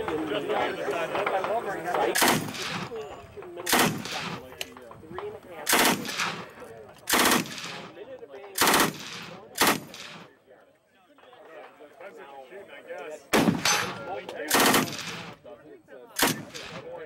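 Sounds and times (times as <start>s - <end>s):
automatic gunfire bursts: 2.1s - 2.9s, 3.7s - 4.4s, 5.6s - 8.0s, 8.6s - 10.3s, 13.4s - 15.4s, 16.2s - 17.0s.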